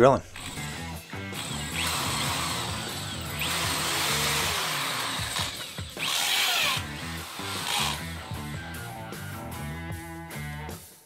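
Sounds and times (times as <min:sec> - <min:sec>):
drill boring into concrete block: 0:00.4 - 0:08.5.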